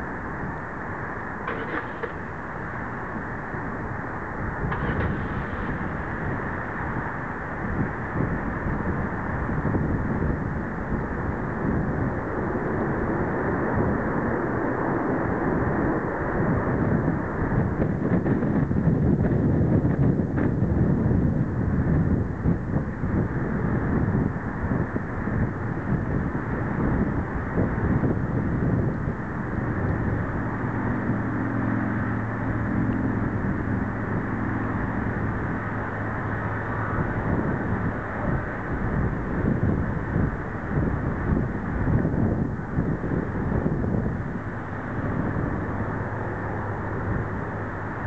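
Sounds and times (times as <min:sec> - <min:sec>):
jet engine roar: 0:00.0 - 0:20.7, 0:21.4 - 0:48.0
jet engine rushing: 0:04.6 - 0:07.0.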